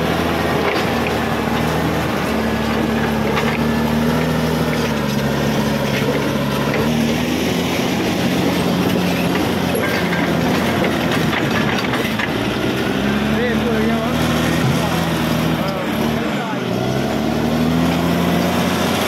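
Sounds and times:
bulldozer diesel engine under load: 0.0s - 19.0s
steel tracks clanking: 2.9s - 12.8s.

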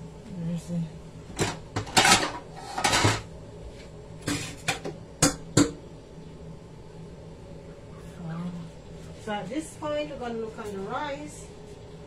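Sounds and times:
dishes and utensils clattering: 1.4s - 3.3s.

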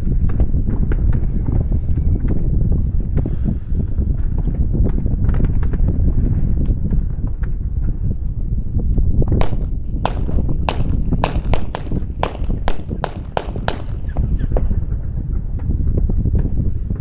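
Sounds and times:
wind rumble on microphone: 0.0s - 17.0s
firecrackers banging: 9.4s - 15.0s.

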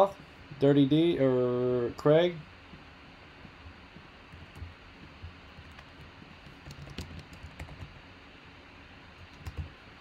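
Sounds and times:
faint keyboard typing: 3.4s - 8.0s, 9.2s - 9.8s.

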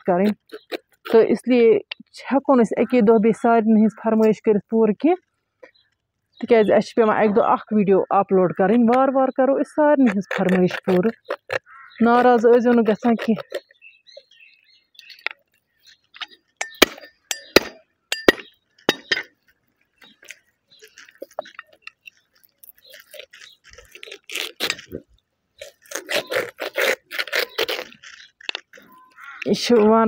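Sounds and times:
skin scraping and tearing: 0.0s - 1.3s, 10.0s - 17.6s, 18.8s - 29.8s.

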